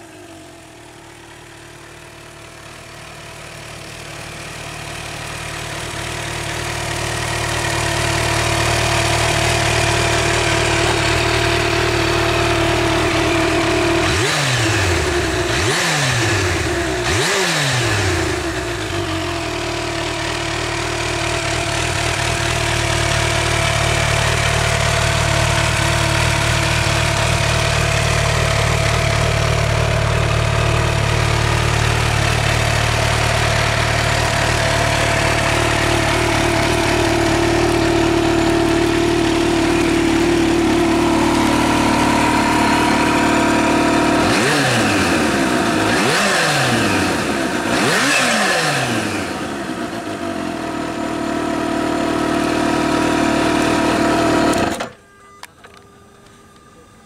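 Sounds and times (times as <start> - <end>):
motorcycle engine idling and revving: 0.0 - 55.0.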